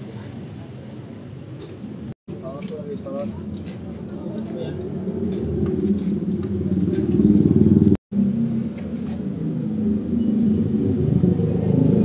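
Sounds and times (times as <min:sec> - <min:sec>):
motorcycle engine running: 0:04.8 - 0:08.7.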